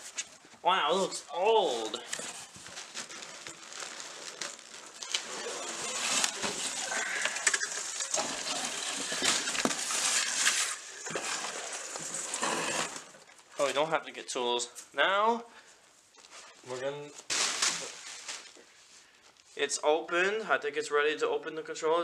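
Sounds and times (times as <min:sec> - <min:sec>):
plastic and bubble wrap crinkling: 0:00.0 - 0:13.9, 0:16.1 - 0:19.6
cardboard scraping: 0:01.9 - 0:13.3.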